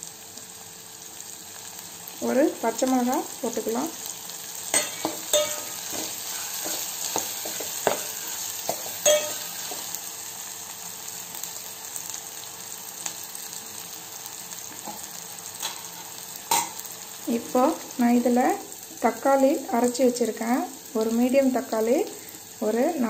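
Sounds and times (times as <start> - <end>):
food sizzling in oil: 0.0 - 23.0
steel spoon clinking against pot: 4.7 - 9.8.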